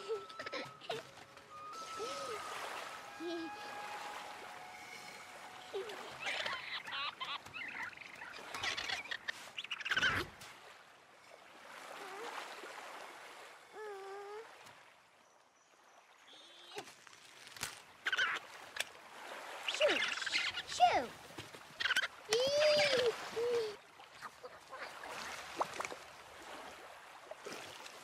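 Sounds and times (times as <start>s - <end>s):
small waves lapping: 0.0s - 28.0s
toddler babbling and cooing: 13.8s - 14.5s, 22.3s - 23.8s.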